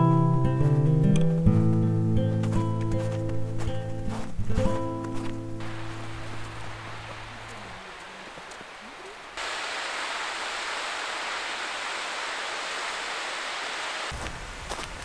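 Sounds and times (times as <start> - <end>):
footsteps: 1.5 - 9.3, 14.1 - 15.0
stream water rushing: 5.6 - 14.2.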